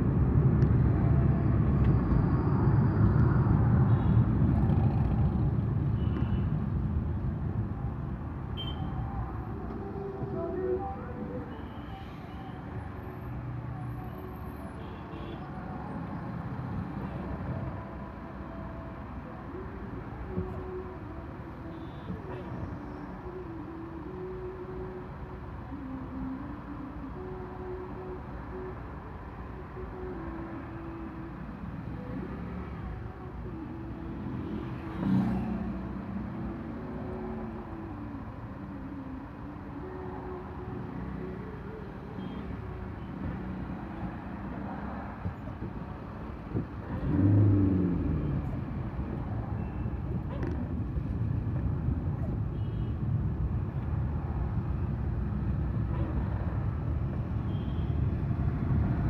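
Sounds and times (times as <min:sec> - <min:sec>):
road traffic rumble: 0:00.0 - 0:59.0
car engines in slow traffic: 0:29.7 - 0:55.8.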